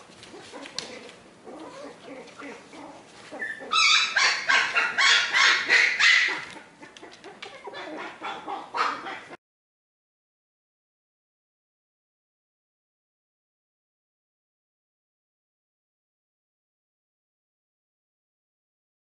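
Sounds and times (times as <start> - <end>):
small dog yipping and barking: 0.3 - 9.4.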